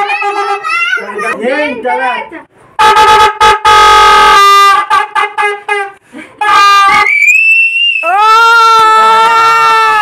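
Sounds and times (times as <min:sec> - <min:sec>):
party horn honking: 0:00.0 - 0:00.8, 0:02.8 - 0:07.1
high whistle: 0:06.9 - 0:08.2.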